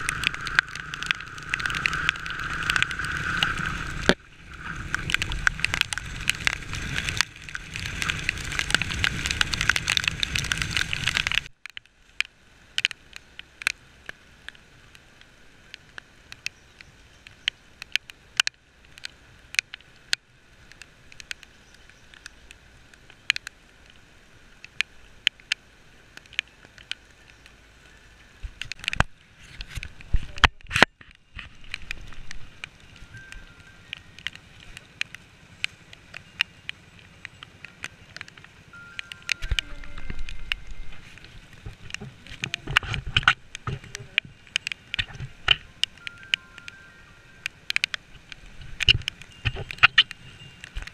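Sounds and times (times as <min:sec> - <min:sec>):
small motorcycle running: 0:00.0 - 0:11.5
raindrops ticking on camera: 0:00.0 - 0:50.9.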